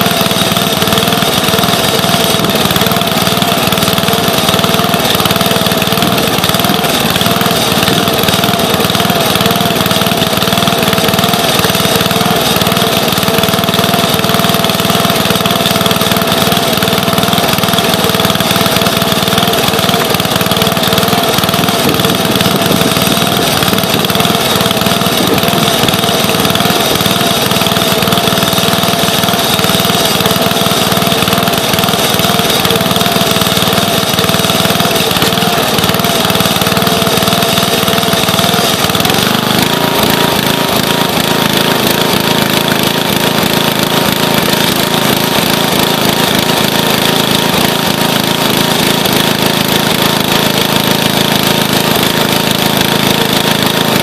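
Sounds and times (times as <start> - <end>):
small gasoline engine droning: 0.0 - 54.0.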